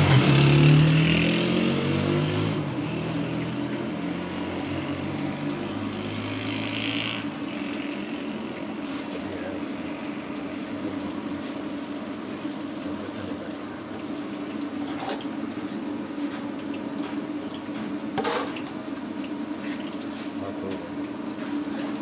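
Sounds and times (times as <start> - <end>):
batter frying in hot oil: 0.0 - 22.0.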